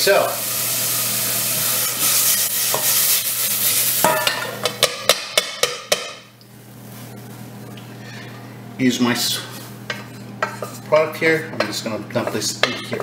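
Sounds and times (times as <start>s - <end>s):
vegetables sizzling in oil: 0.0s - 4.7s
sharp metal knocks of pan: 4.1s - 6.2s.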